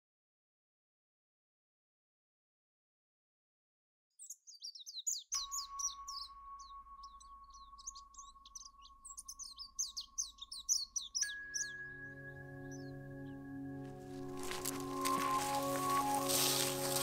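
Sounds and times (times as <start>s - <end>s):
small birds chirping: 4.2s - 13.4s.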